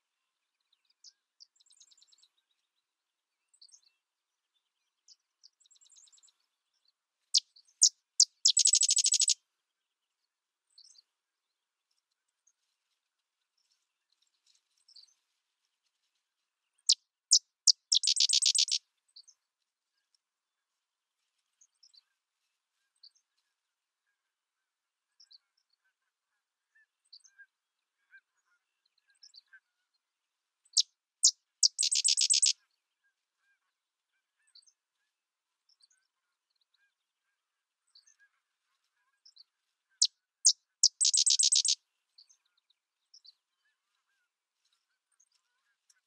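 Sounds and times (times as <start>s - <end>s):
faint high bird chips: 8.2s - 9.4s, 17.7s - 18.8s, 31.6s - 32.5s, 40.8s - 41.8s
wren song with staccato chatter: 8.2s - 9.4s, 17.7s - 18.8s, 31.6s - 32.5s, 40.8s - 41.8s.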